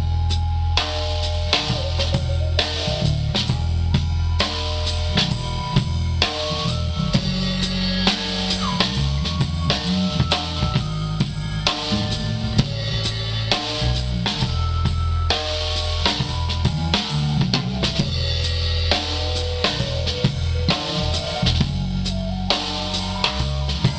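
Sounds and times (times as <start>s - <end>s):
bass line: 0.0s - 23.9s
drum kit beat: 0.0s - 23.9s.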